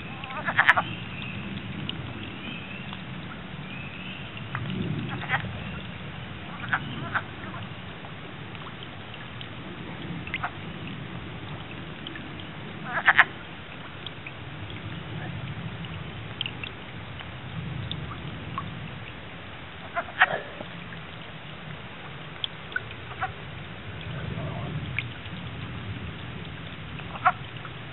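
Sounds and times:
frogs calling in chorus: 0.0s - 1.4s, 3.8s - 5.8s, 6.5s - 7.7s, 12.8s - 13.3s, 19.8s - 20.7s, 27.1s - 27.4s.

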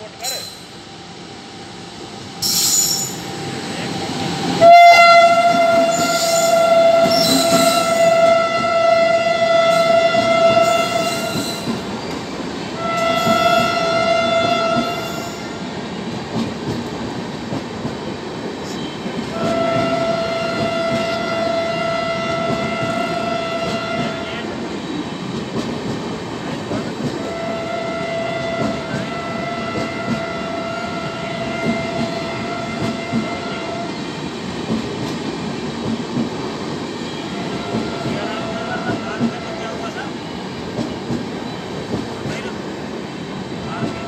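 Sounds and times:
train rumbling past: 0.0s - 44.0s
train horn blasts: 4.6s - 11.8s, 12.8s - 15.6s, 18.8s - 24.6s, 27.2s - 34.0s, 37.2s - 39.6s.

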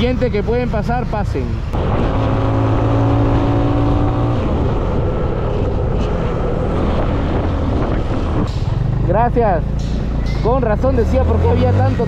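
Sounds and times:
wind rushing on microphone: 1.6s - 9.1s.

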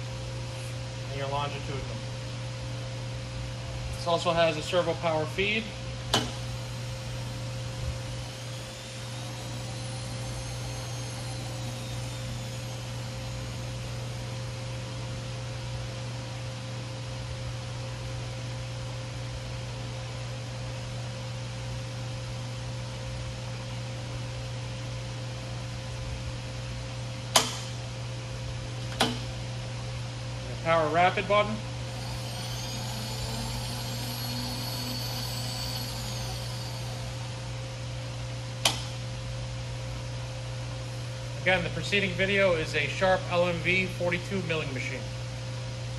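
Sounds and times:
milling machine humming: 0.0s - 16.8s, 27.1s - 43.6s
faint whine: 3.6s - 16.0s, 30.4s - 45.0s
sharp click: 27.3s - 27.8s, 38.6s - 39.0s.

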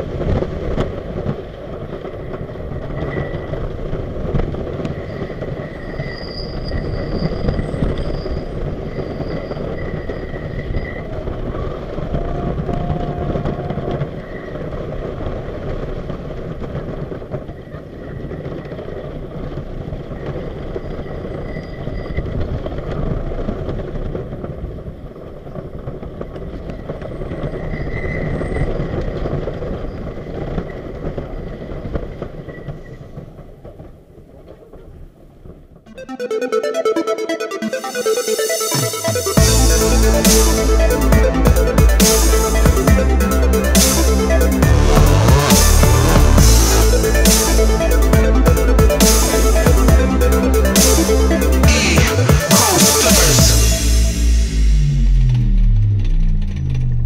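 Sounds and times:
roller coaster rumble and clatter: 0.0s - 35.9s
high wheel squeal: 4.9s - 11.2s.

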